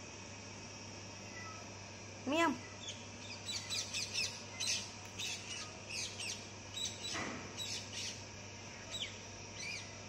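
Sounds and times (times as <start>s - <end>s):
faint low hum: 0.0s - 10.0s
small birds chirping: 2.3s - 10.0s.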